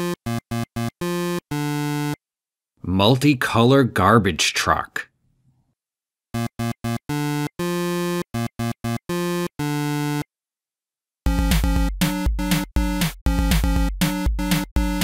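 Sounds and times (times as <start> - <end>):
synthesizer tune with bass line: 11.3 - 15.0.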